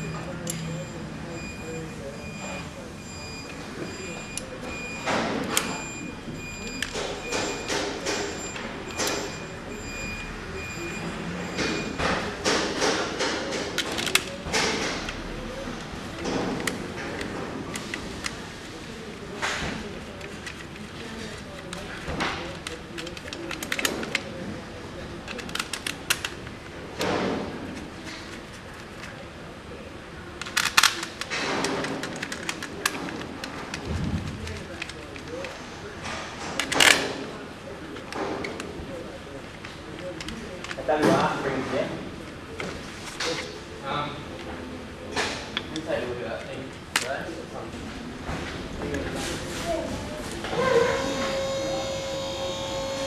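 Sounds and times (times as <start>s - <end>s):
metal and plastic parts clicking: 0.4s - 0.7s, 12.4s - 15.2s, 15.8s - 18.4s, 19.4s - 24.3s, 25.2s - 29.2s, 30.4s - 35.6s, 36.5s - 37.2s, 39.5s - 40.8s, 45.2s - 47.2s.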